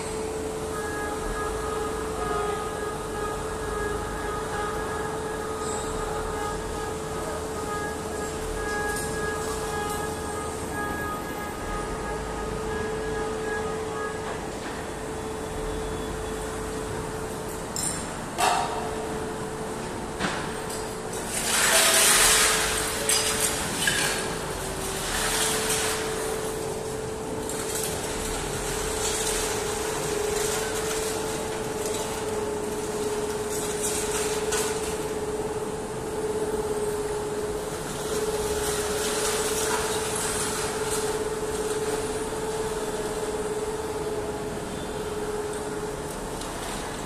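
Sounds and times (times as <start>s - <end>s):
factory din: 0.0s - 47.0s
machinery hum: 0.0s - 47.0s
scrap metal clanks and rattles: 20.2s - 35.1s.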